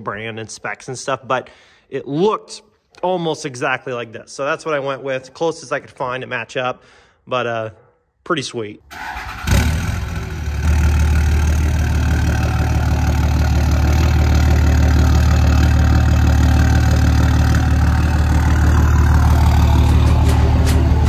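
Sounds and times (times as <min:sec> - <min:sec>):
diesel engine idling: 0:09.1 - 0:21.0.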